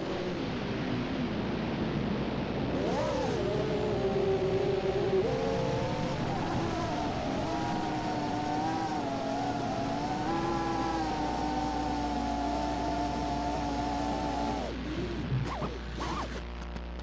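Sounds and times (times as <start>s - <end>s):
drone motors whining: 2.7s - 17.0s.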